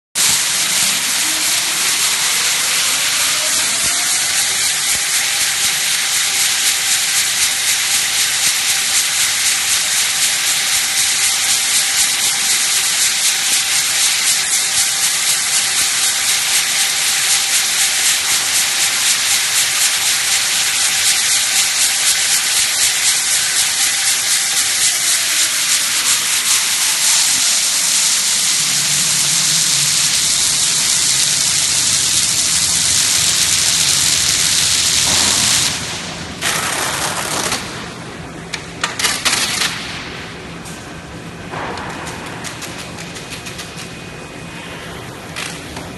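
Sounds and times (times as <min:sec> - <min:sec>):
machine motor whine: 0:00.2 - 0:08.0
tape hissing off rolls: 0:00.2 - 0:45.9.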